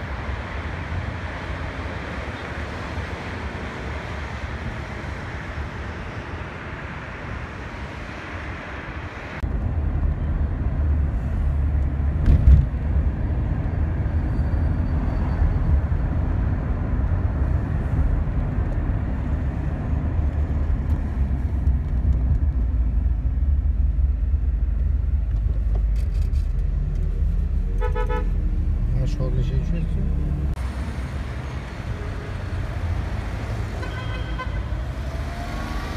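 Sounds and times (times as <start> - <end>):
distant highway traffic: 0.0 - 35.9
wind: 0.0 - 35.9
car road rumble from inside: 9.4 - 33.5.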